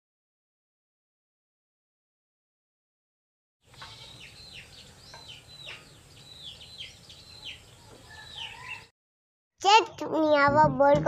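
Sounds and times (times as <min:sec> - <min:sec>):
chicks peeping: 0:03.7 - 0:08.9.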